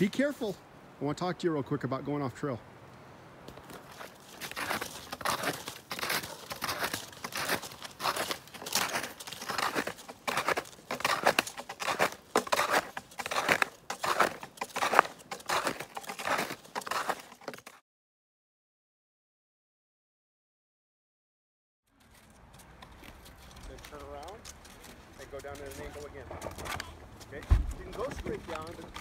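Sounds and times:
snowshoe footsteps crunching snow: 3.4s - 17.8s, 22.0s - 29.0s.

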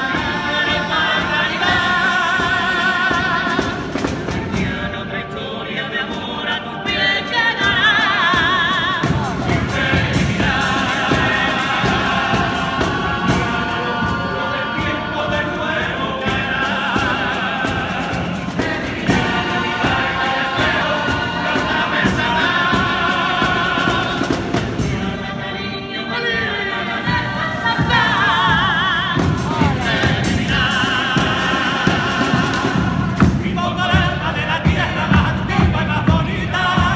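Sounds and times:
men singing in harmony: 0.0s - 36.9s
steady beat: 8.4s - 25.1s, 27.7s - 36.9s.

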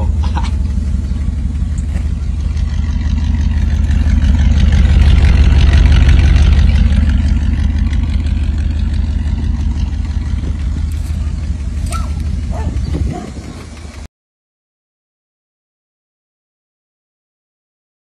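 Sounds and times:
pickup engine low rumble: 0.0s - 14.1s.

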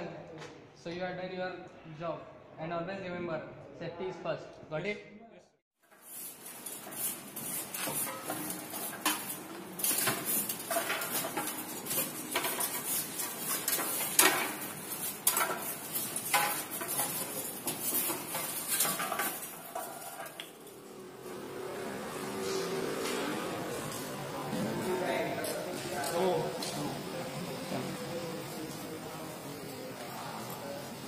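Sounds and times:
metal chips scraping and clinking: 5.8s - 20.9s.

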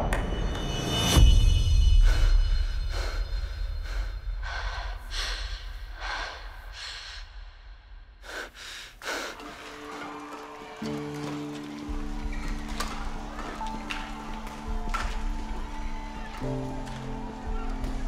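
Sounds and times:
person gasping breaths: 8.2s - 9.8s.

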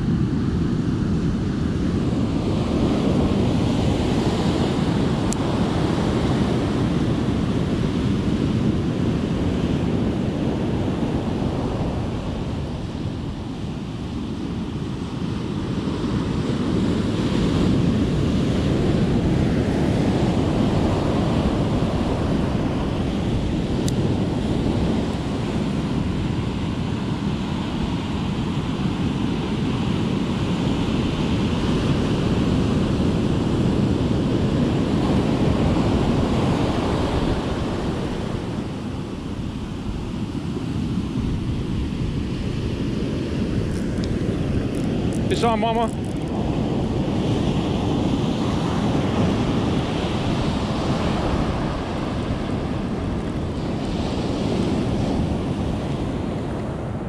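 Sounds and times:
ocean surf breaking: 0.0s - 57.0s.

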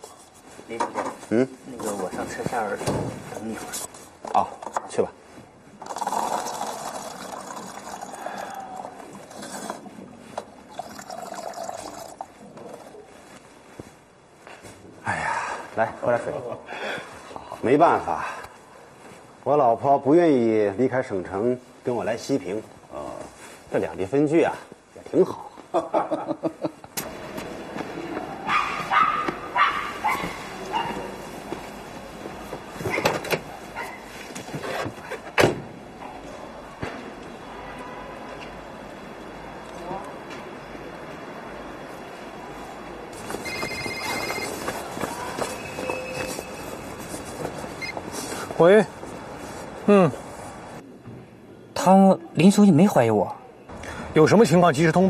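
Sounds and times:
water running into cups: 5.8s - 12.4s
dog barking: 28.4s - 31.2s.

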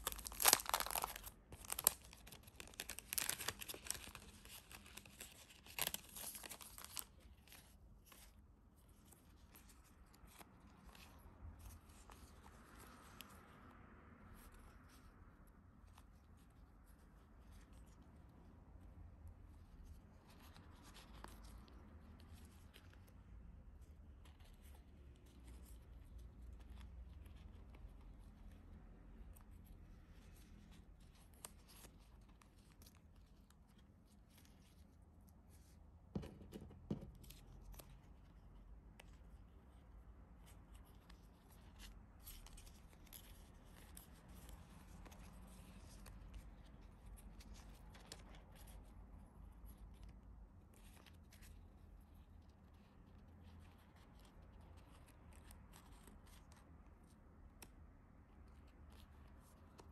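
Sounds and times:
sticker sheets rustling: 0.0s - 12.9s.

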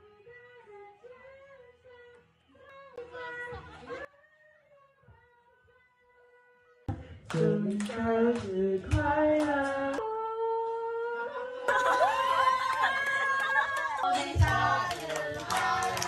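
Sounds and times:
people singing along: 7.3s - 11.9s, 14.0s - 16.0s.

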